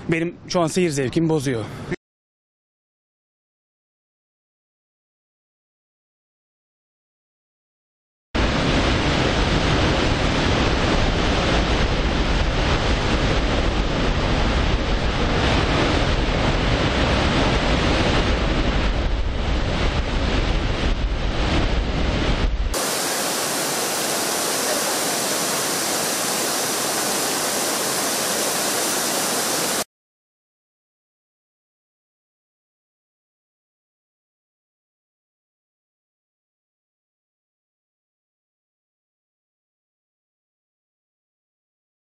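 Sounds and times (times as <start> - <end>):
waterfall rushing: 8.4 - 11.9, 22.8 - 29.8
waterfall plunging into sea: 8.4 - 29.9.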